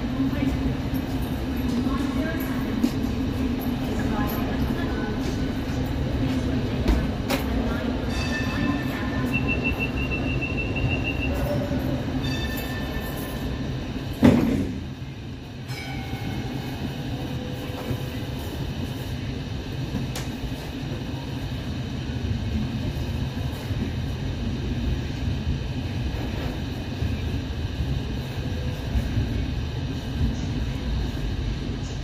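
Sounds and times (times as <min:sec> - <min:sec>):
tram motors and wheels rumbling: 0:00.0 - 0:32.0
door warning beeps: 0:08.5 - 0:11.6.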